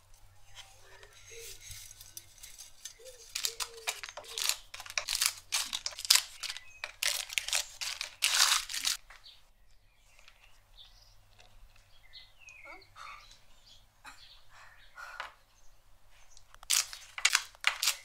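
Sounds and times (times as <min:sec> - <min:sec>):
faint handling sounds: 0:00.0 - 0:12.0
plastic wrapper crinkling: 0:00.8 - 0:09.0, 0:16.5 - 0:18.0.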